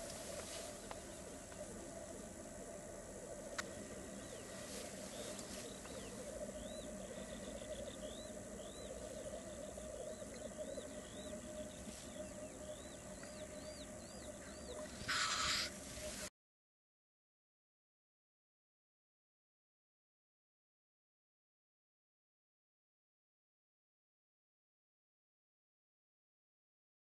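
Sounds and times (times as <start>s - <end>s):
grouse bubbling song: 0.0s - 16.3s
loud hissing bird call: 14.4s - 16.3s.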